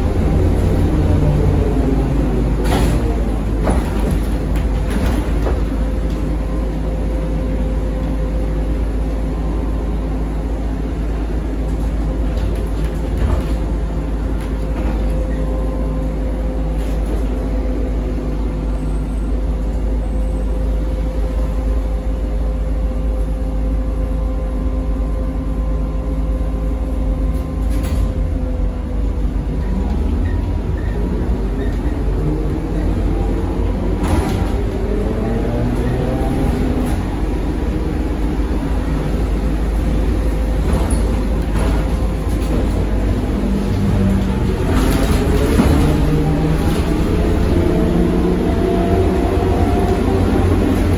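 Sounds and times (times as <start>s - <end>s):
trolleybus low rumble: 0.0s - 50.9s
knocks from bus body: 2.6s - 5.8s.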